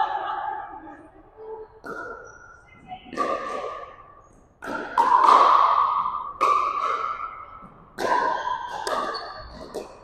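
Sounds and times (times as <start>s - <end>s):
paddles hitting plastic ball: 4.6s - 10.0s.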